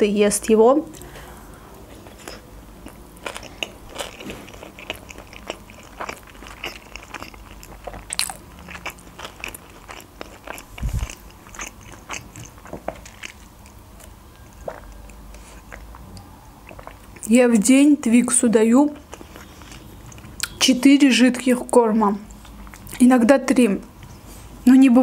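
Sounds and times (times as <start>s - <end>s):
person chewing: 0.9s - 17.3s, 18.9s - 20.6s, 22.3s - 23.0s.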